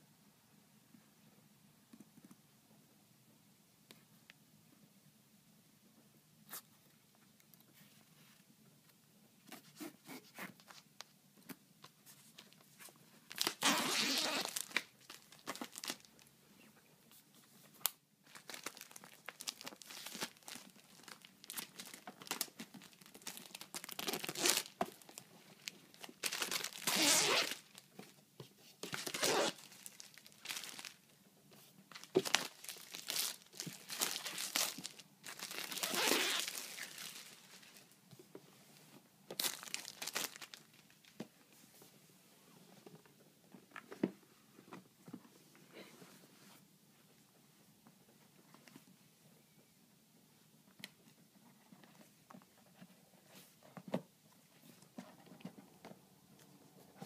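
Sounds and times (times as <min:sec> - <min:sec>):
plastic wrap crinkling tears: 0:13.3 - 0:16.1, 0:18.3 - 0:27.8, 0:29.0 - 0:31.0, 0:31.9 - 0:37.5, 0:39.3 - 0:40.8.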